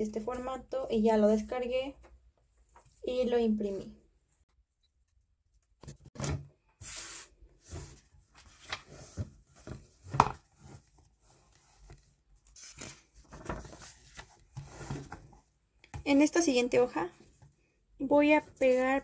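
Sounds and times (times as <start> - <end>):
paper rustling and scraping: 6.8 - 15.4, 18.3 - 19.0.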